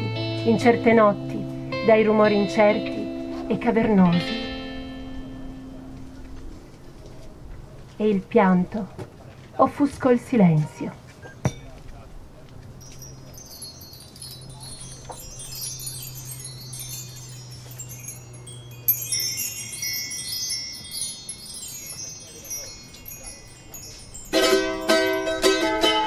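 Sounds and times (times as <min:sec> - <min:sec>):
bar chimes shimmering: 0:00.0 - 0:06.3, 0:12.7 - 0:26.0
acoustic guitar plucked chords: 0:00.0 - 0:06.5.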